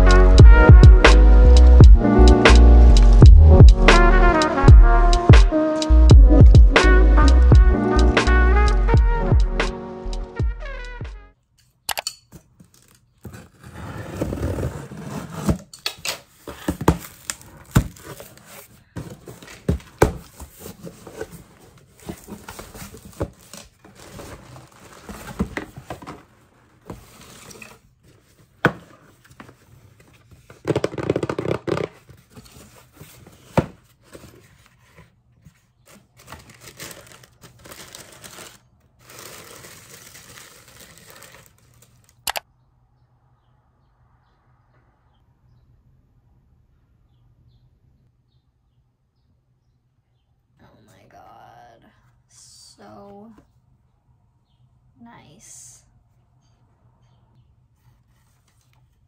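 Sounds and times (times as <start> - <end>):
sharp clicks and knocks: 11.9 - 12.3
paper or plastic rustling: 16.2 - 42.2.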